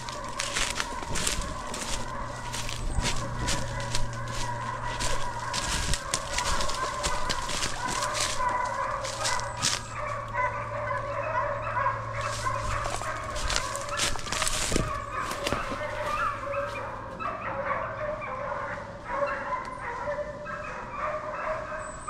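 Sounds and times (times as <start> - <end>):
footsteps crunching dry leaves: 0.0 - 10.4, 12.1 - 17.1
hounds baying: 0.0 - 22.0.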